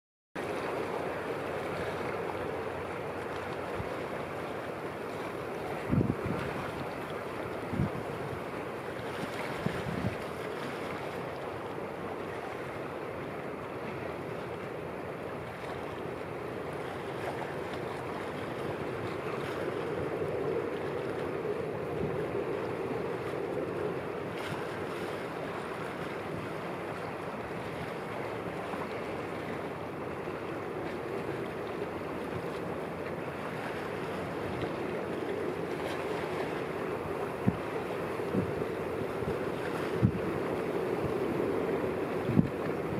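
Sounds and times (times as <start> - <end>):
wind noise on microphone: 5.1 - 11.1, 18.5 - 30.4, 35.7 - 42.9.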